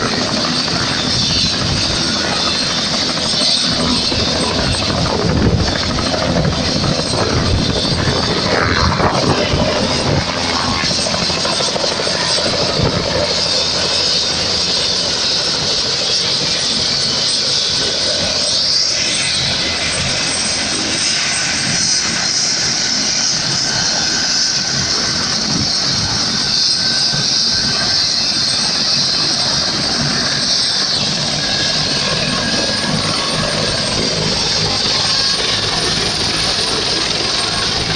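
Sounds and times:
helicopter rotor and turbine noise: 0.0 - 37.9.

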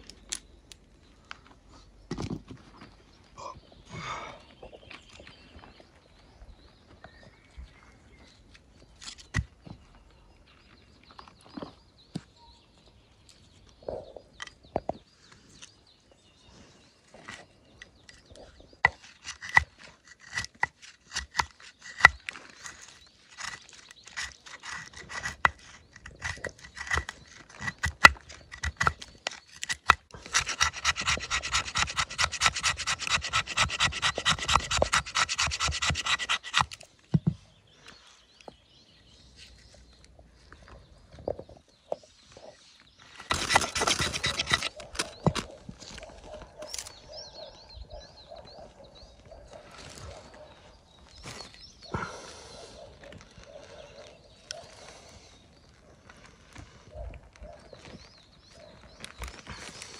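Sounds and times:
scraping and rasping strokes: 18.2 - 36.9, 42.4 - 47.0.

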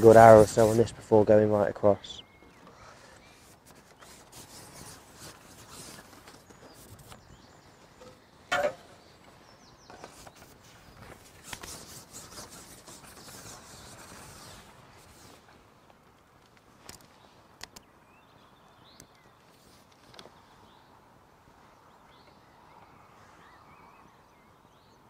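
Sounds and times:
fishing pole rubbing and scraping: 0.0 - 1.0, 3.3 - 7.3, 9.9 - 15.4.

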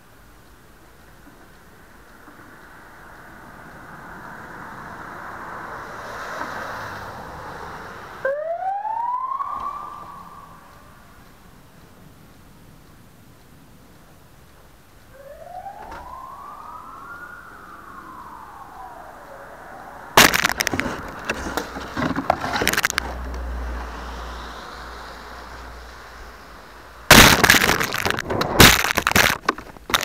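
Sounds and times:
distant siren wail: 2.8 - 11.5, 15.1 - 21.4.

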